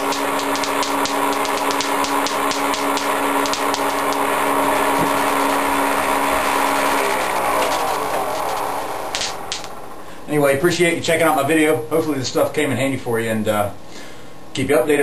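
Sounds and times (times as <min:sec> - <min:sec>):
electric sparks crackling: 0:00.0 - 0:10.0
motor humming: 0:00.0 - 0:10.3.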